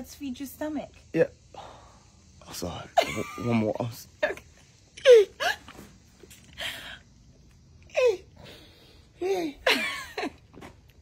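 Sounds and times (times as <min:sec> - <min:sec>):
woman stifling laughter: 0:09.2 - 0:10.5.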